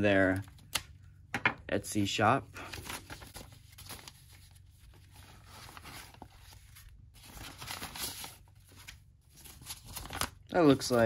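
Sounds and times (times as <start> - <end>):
paper envelope tearing: 2.7 - 11.0.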